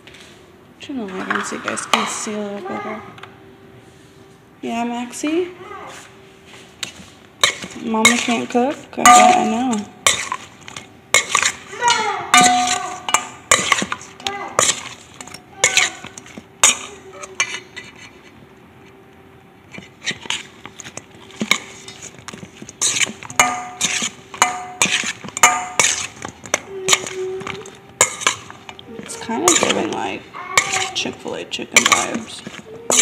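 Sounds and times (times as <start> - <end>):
metal spoon scraping steel bowl: 6.8 - 18.3, 19.8 - 33.0.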